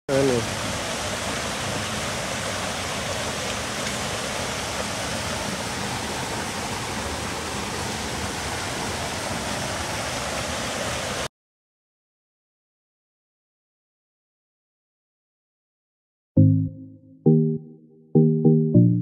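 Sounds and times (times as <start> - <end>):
river water rushing over cascade: 0.1 - 11.3.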